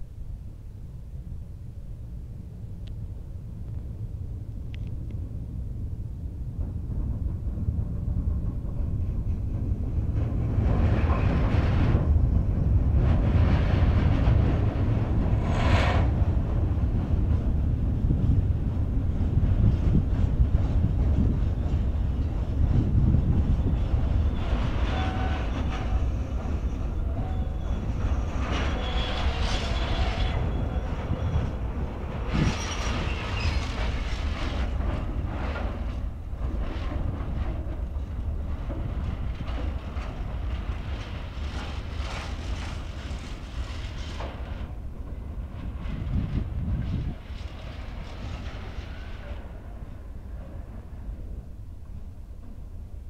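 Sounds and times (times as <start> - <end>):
train wheels rumbling on rails: 2.5 - 53.0
wheel squeals: 23.6 - 31.6, 32.3 - 34.3.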